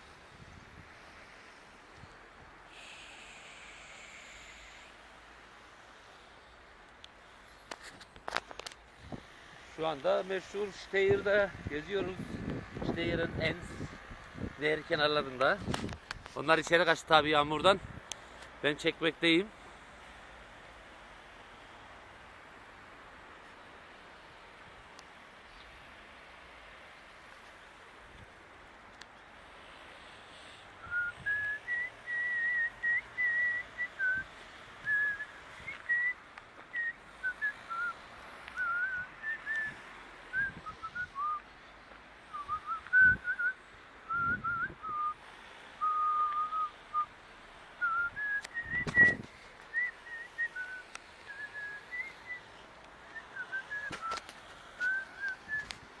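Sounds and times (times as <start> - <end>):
person whistling: 30.8 - 34.3, 34.9 - 38.0, 38.6 - 41.4, 42.3 - 45.2, 45.8 - 47.1, 47.8 - 52.5.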